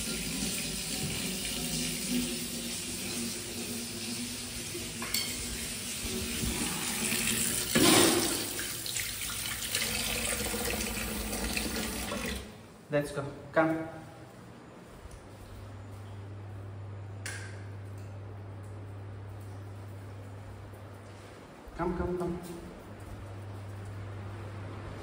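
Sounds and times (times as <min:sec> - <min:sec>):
water running from tap into sink: 0:00.0 - 0:12.5.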